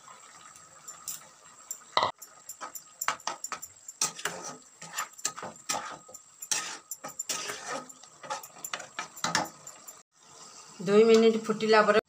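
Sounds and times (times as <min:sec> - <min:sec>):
spatula scraping curry in pan: 0:02.4 - 0:10.0.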